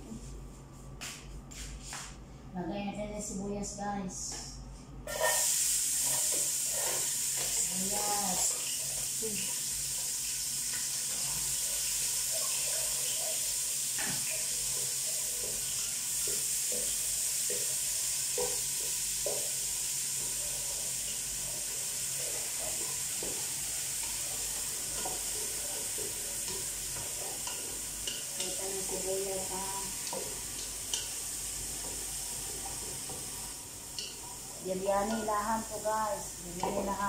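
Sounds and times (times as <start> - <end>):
spoon scraping a pot: 5.1 - 7.1
onions sizzling in oil: 5.1 - 37.0.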